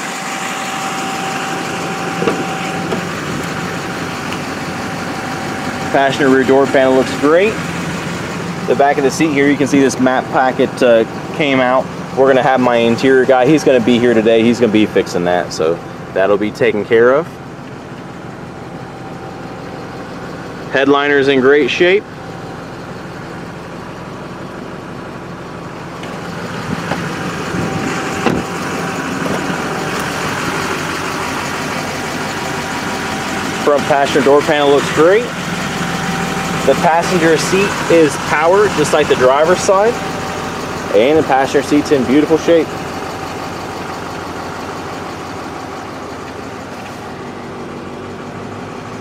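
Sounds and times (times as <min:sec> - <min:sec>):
diesel engine idling: 0:00.0 - 0:49.0
car door clunk: 0:02.1 - 0:03.5, 0:26.0 - 0:27.1, 0:28.2 - 0:28.5.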